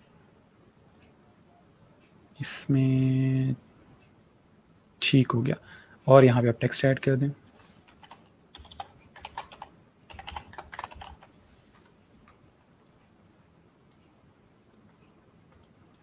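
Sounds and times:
faint mouse clicks: 0:00.9 - 0:01.2, 0:11.7 - 0:13.1, 0:14.7 - 0:16.0
keyboard typing: 0:07.8 - 0:13.1.

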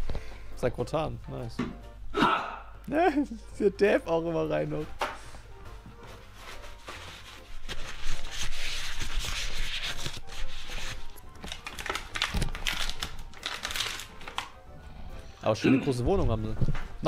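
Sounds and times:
music: 0:00.0 - 0:17.0
paper towel rubbing: 0:05.9 - 0:11.2.

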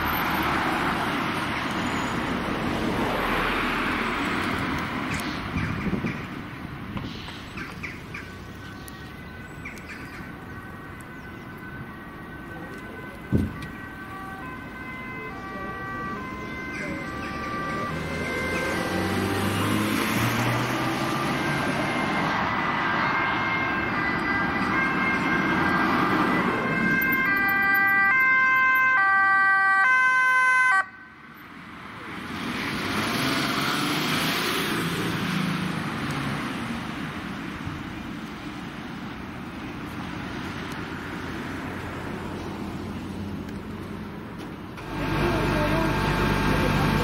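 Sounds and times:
vehicle passing: 0:00.0 - 0:37.7, 0:39.9 - 0:47.0
two-tone ambulance siren: 0:08.5 - 0:31.4, 0:44.8 - 0:47.0.

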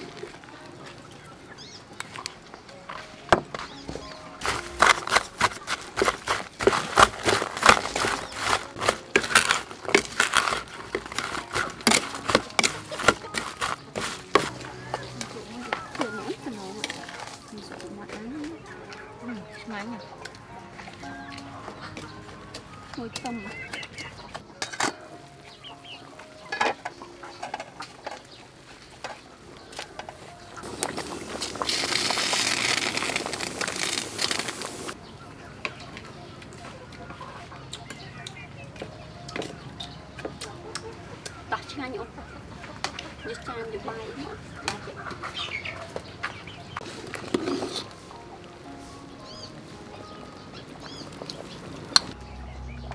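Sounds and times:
chickens clucking: 0:00.0 - 0:52.9
spoon scraping fruit in a bowl: 0:04.4 - 0:17.4, 0:46.8 - 0:48.0
soup boiling and bubbling: 0:30.6 - 0:35.0, 0:46.8 - 0:48.7, 0:49.4 - 0:52.2.

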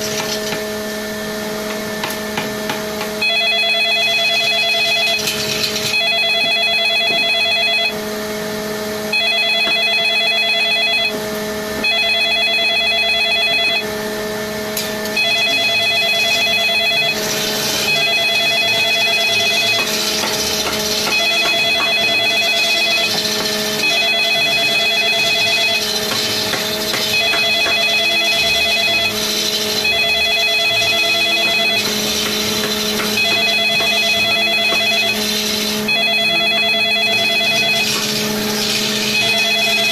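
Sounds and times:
tool scraping wood: 0:00.0 - 0:00.7, 0:17.0 - 0:30.0, 0:30.8 - 0:35.9, 0:36.5 - 0:39.4
electric wood lathe humming: 0:00.0 - 0:39.9
telephone ringing electronic trill: 0:03.2 - 0:08.0, 0:09.1 - 0:11.2, 0:11.8 - 0:14.0, 0:15.1 - 0:39.9.

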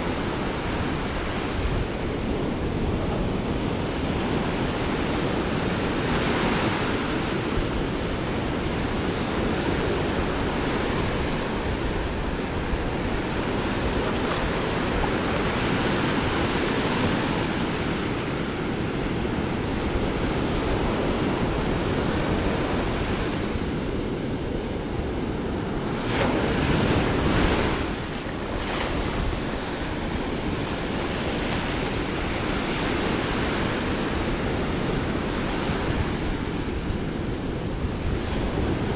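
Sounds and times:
surf washing up sand: 0:00.0 - 0:38.9
wind on microphone: 0:00.0 - 0:38.9.

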